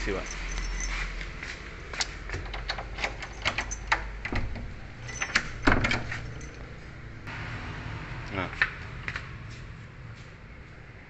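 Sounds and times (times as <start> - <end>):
door latch clicking: 2.3 - 6.2
door handle clattering: 2.3 - 6.6.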